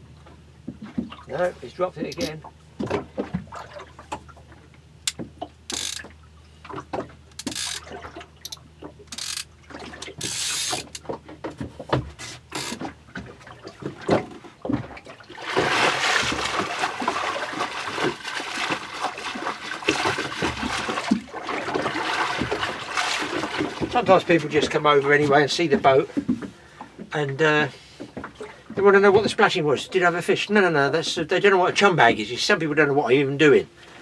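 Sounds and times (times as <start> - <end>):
water splashing against boat: 0.0 - 34.0
knocks and clicks of handling: 5.1 - 14.9.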